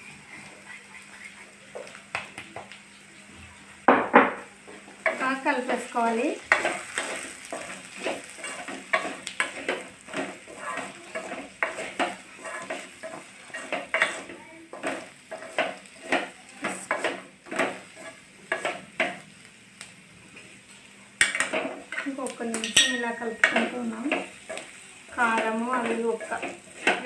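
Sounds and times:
vegetables sizzling in oil: 0:00.0 - 0:27.0
wooden spatula scraping metal pan: 0:05.0 - 0:18.8, 0:21.3 - 0:27.0.

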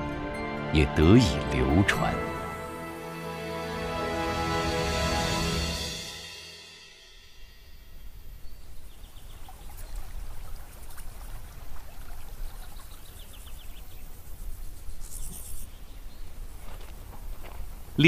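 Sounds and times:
high insect buzz: 0:13.4 - 0:15.9.

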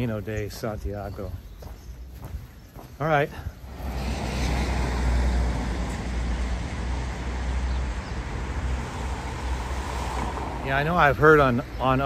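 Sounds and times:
low traffic rumble: 0:00.0 - 0:12.0
tyres hissing on wet road: 0:03.6 - 0:11.1.

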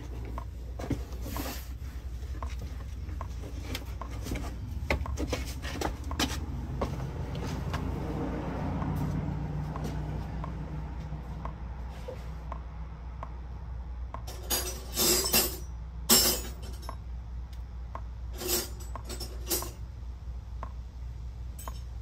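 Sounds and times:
low steady hum: 0:00.0 - 0:22.0
hand tools clicking and knocking: 0:18.4 - 0:19.8.

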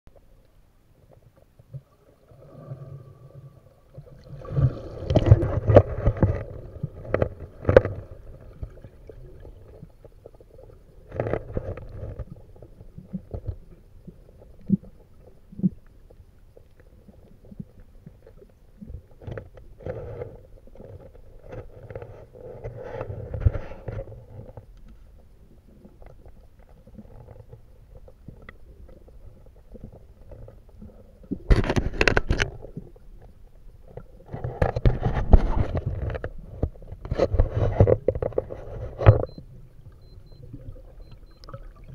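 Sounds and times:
underwater swishes and gurgles: 0:00.1 - 0:41.9
bubbles: 0:01.8 - 0:11.6, 0:39.3 - 0:41.9.

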